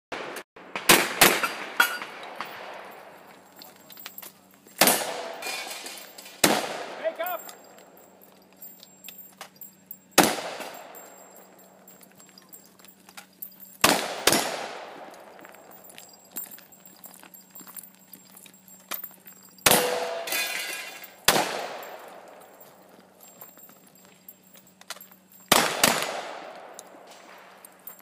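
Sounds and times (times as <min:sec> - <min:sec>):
shotgun blasts: 0:00.2 - 0:02.9, 0:04.8 - 0:05.7, 0:06.4 - 0:07.2, 0:10.2 - 0:11.0, 0:13.8 - 0:15.2, 0:19.6 - 0:20.4, 0:21.3 - 0:22.2, 0:25.5 - 0:27.5
small clicks and clinks: 0:01.8 - 0:04.8, 0:07.2 - 0:28.0.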